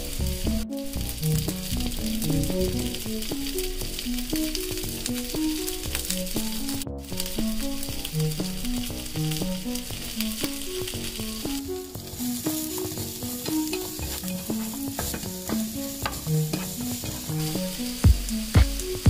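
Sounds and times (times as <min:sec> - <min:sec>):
light plucked background music: 0:00.0 - 0:19.0
vegetable slices sizzling in pan: 0:00.0 - 0:19.0
low thumping beat: 0:00.1 - 0:10.8, 0:11.5 - 0:19.0
wooden spatula scraping pan: 0:12.1 - 0:17.8
wood clicking on pan: 0:12.6 - 0:17.6.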